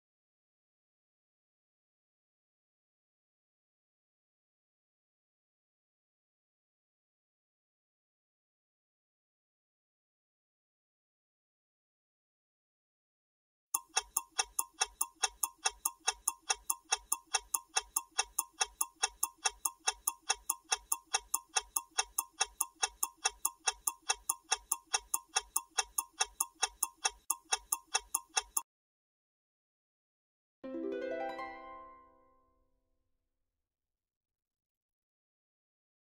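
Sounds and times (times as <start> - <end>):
countdown timer ticking: 13.8 - 28.6.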